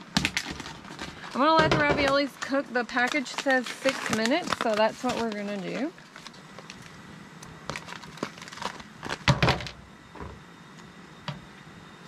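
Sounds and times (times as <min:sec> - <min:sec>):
plastic package crinkling: 0:00.0 - 0:09.8
water boiling: 0:00.0 - 0:12.0.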